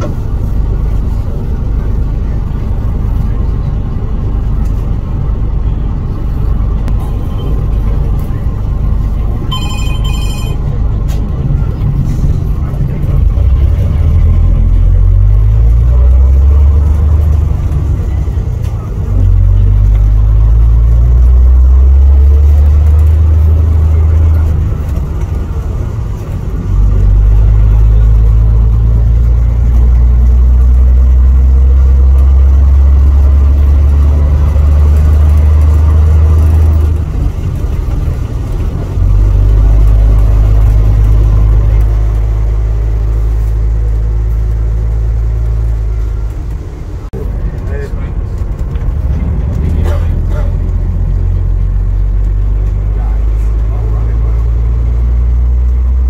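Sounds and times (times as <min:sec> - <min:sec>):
bus engine droning: 0:00.0 - 0:56.0.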